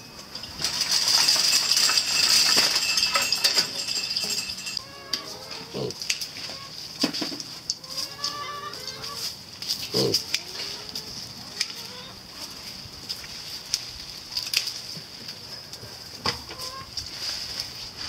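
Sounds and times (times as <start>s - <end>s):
dry leaves rustling: 0.0s - 18.0s
farmyard animal calls: 4.8s - 17.3s.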